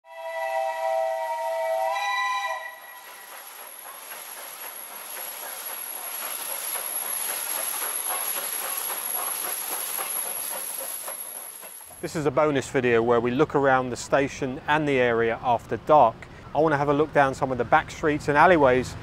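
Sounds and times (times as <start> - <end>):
steam locomotive whistle: 0.0 - 3.5
train wheels clattering over rails: 2.7 - 12.0.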